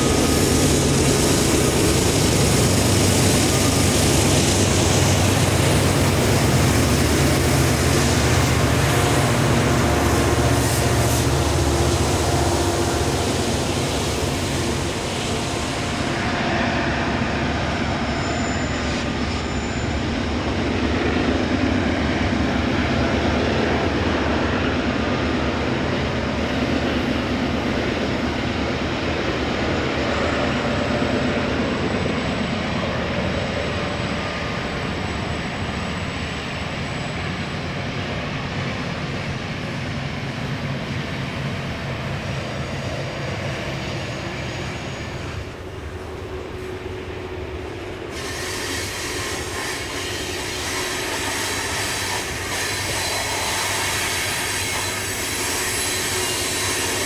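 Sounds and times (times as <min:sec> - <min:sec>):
diesel locomotive engine rumble: 0:00.0 - 0:57.0
train cars rolling on rails: 0:00.0 - 0:57.0.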